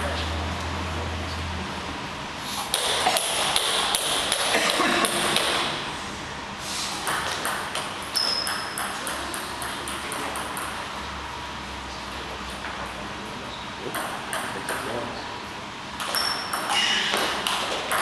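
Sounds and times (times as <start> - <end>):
table tennis ball clicking: 7.1 - 10.8
brief high squeak: 16.1 - 17.2.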